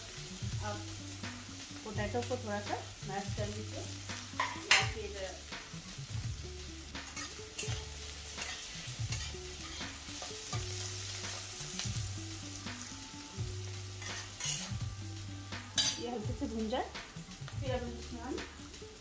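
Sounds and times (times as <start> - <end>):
vegetables sizzling in hot oil: 0.0 - 19.0
stirring scrapes in a pan: 7.0 - 12.0, 13.9 - 14.8.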